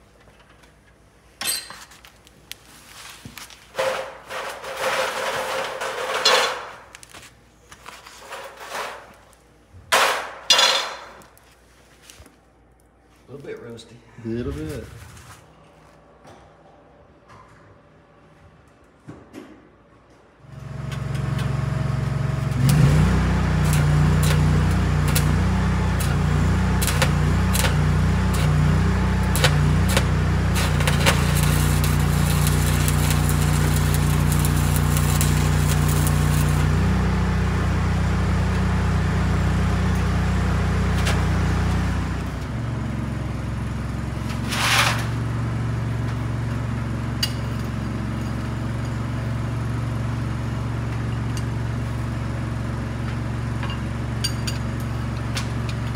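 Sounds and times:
low machine hum: 20.1 - 55.9
arc welding crackling: 20.5 - 42.7.

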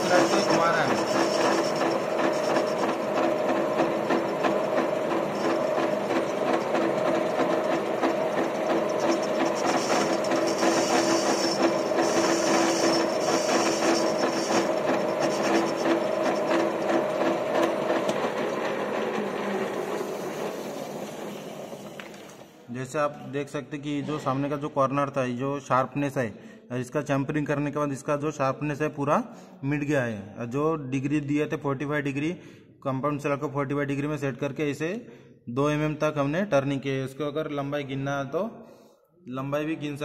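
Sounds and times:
cutting tool hissing scrape: 0.0 - 7.6, 8.7 - 18.2, 19.6 - 22.6
lathe gear hum: 0.0 - 22.5
rapid mechanical rattle: 0.0 - 22.5.

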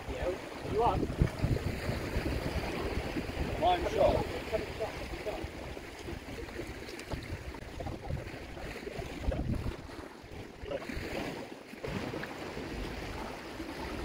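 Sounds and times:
wind buffeting microphone: 0.0 - 10.8
sea washing against rocks: 0.0 - 14.0.

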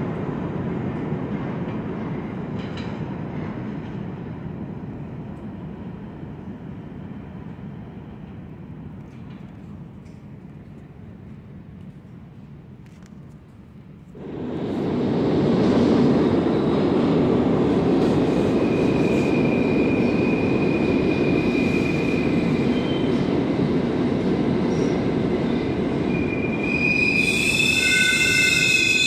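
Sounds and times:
subway train rumbling: 0.0 - 29.0
train wheel squeals: 18.4 - 23.3, 26.1 - 29.0.

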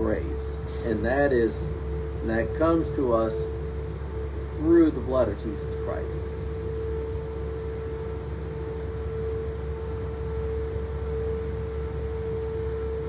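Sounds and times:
steady machine hum: 0.0 - 13.0.

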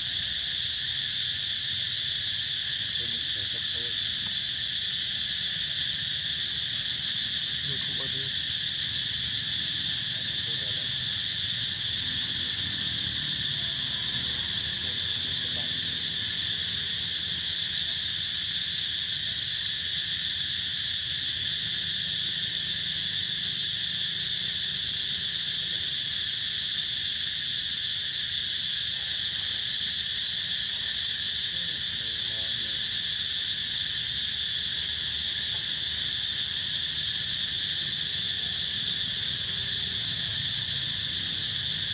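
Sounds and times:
insect chorus drone: 0.0 - 41.9.

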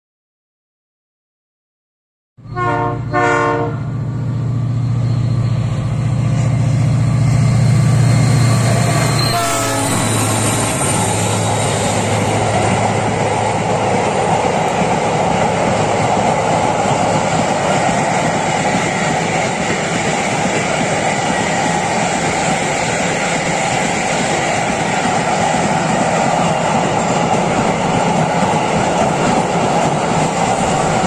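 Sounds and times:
locomotive drone: 2.4 - 31.0
train horn: 2.5 - 3.9, 9.0 - 10.6.

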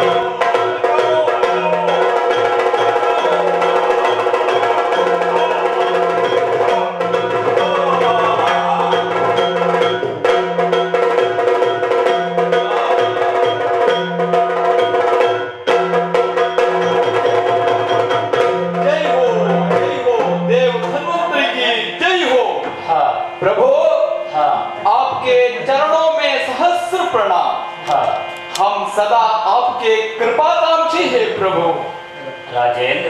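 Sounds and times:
drums in steady rhythm: 0.0 - 31.8
continuous drone: 15.6 - 30.4, 31.1 - 33.0.

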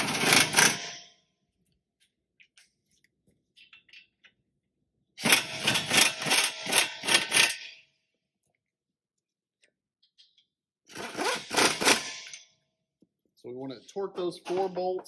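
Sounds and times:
pneumatic impact gun hammering: 0.0 - 1.1, 5.2 - 7.8, 10.9 - 12.5.

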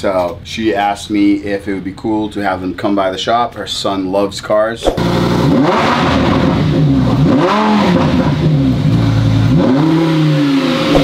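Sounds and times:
car engine revving: 5.0 - 11.0.

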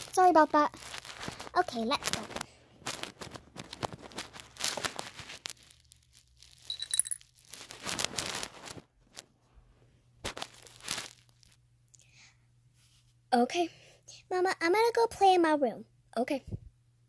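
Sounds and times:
plastic toys rustling and knocking: 0.1 - 9.2
bright clink: 6.7 - 7.2.

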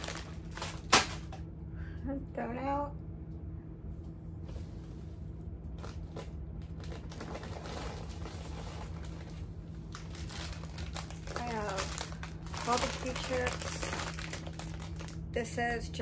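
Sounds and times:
plastic snack bags crinkling: 0.0 - 1.5, 5.7 - 15.6.

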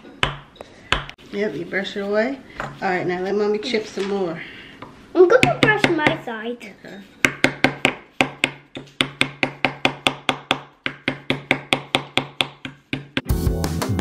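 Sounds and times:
hammer tapping on chisel: 7.2 - 13.3
background music: 13.2 - 14.0.

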